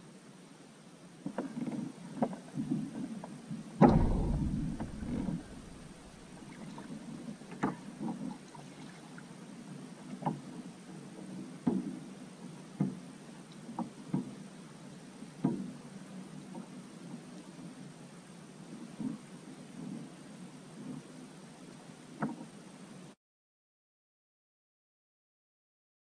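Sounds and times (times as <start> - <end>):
light knocks on kayak: 3.8 - 6.2.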